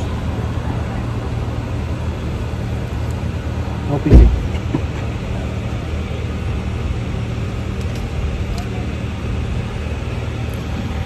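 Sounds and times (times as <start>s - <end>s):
vehicle engine running: 0.0s - 11.0s
loud low thump: 4.1s - 4.5s.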